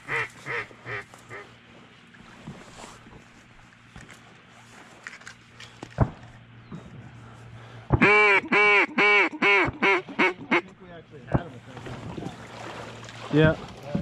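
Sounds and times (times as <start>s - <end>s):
duck call quacks: 0.0s - 1.5s, 8.0s - 10.7s.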